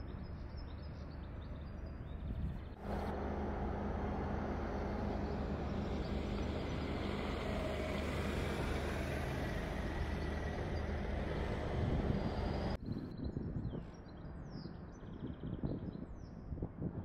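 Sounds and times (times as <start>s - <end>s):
engine running steadily: 2.5s - 12.8s.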